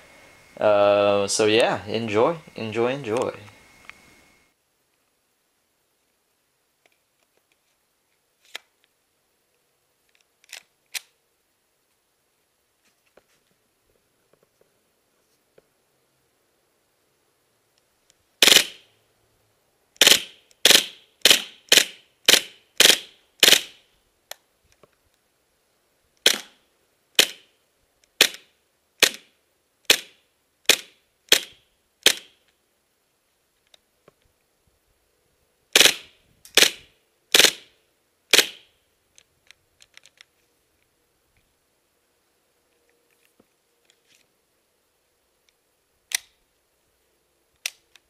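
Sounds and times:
airsoft gun firing sharp cracks: 18.4s - 18.8s, 20.0s - 23.8s, 26.2s - 26.6s, 27.2s - 27.5s, 28.2s - 29.3s, 29.9s - 32.4s, 35.8s - 37.7s, 38.3s - 38.7s.

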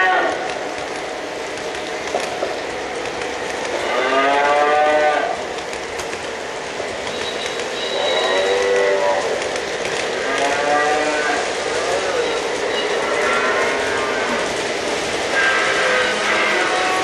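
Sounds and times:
model train rolling on track: 0.0s - 17.0s
recorded cattle mooing: 3.8s - 5.4s, 10.2s - 11.4s, 13.0s - 14.4s, 15.4s - 17.0s.

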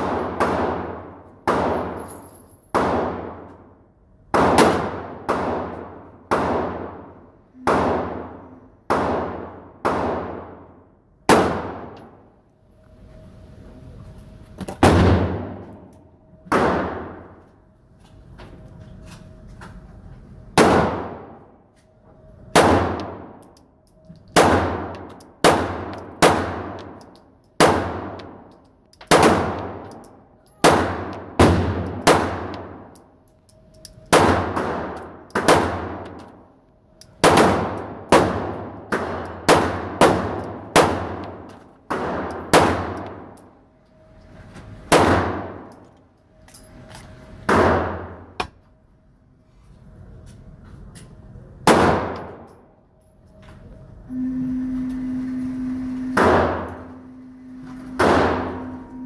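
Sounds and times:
pistol shots echoing indoors: 0.0s - 12.4s, 14.7s - 17.5s, 20.5s - 21.6s, 22.4s - 43.8s, 44.8s - 45.9s, 47.4s - 48.5s, 51.6s - 52.7s, 56.0s - 59.0s.

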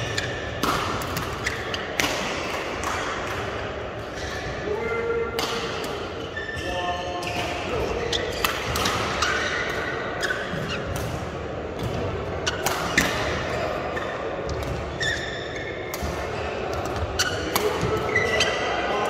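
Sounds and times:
shoes squeaking on court: 0.0s - 2.0s, 6.1s - 11.0s, 11.8s - 19.0s
racket hitting shuttlecock: 0.0s - 4.5s, 7.2s - 13.6s, 15.8s - 18.6s.

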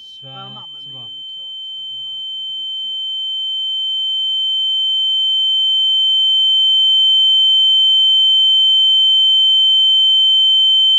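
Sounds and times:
high-pitched electronic tone: 0.0s - 3.2s.

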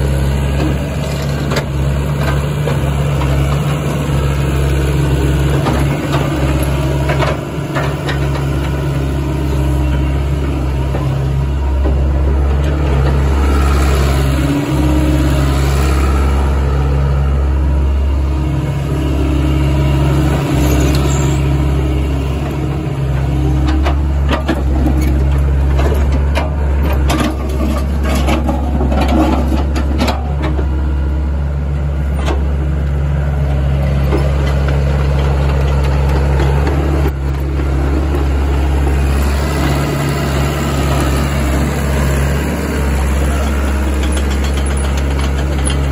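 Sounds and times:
diesel engine deep hum: 0.0s - 45.9s
tracks clicking over rubble: 42.9s - 45.9s.

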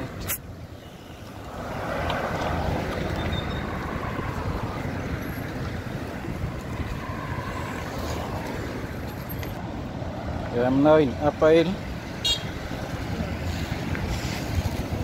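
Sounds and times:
road traffic: 0.0s - 15.0s
wind buffeting microphone: 1.4s - 9.6s.

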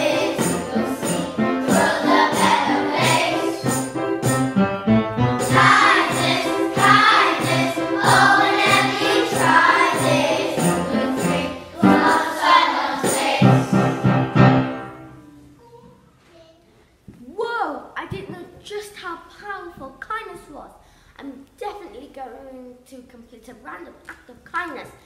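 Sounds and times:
children singing in unison: 0.0s - 3.8s, 5.4s - 14.0s
piano: 0.0s - 15.6s.

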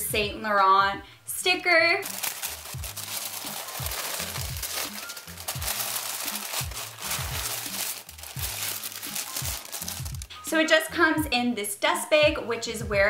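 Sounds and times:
tissue paper crinkling: 2.0s - 10.3s.

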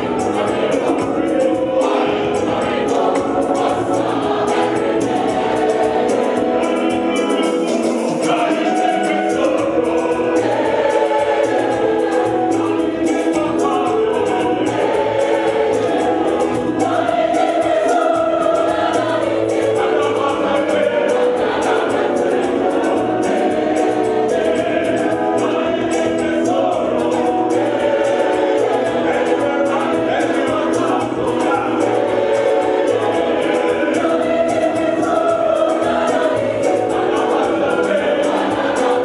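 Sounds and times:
gospel choir singing: 0.0s - 39.0s
instrumental backing: 0.0s - 39.0s.

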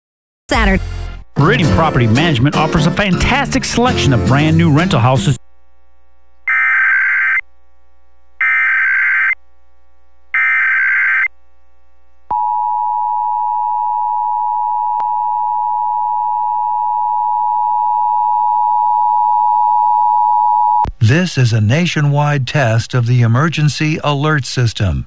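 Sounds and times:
screeching data bursts: 8.4s - 9.4s, 10.4s - 11.3s.

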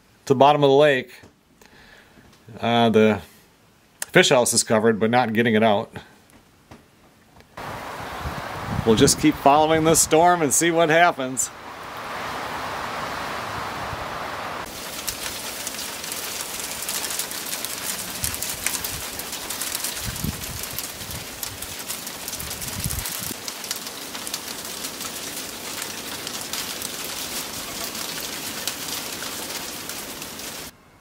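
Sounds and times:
wind buffeting microphone: 7.6s - 10.5s, 11.5s - 14.7s, 18.0s - 19.3s, 19.9s - 23.4s
steady wind: 7.6s - 15.6s, 17.6s - 31.0s
patter of driven snow: 11.6s - 30.7s.

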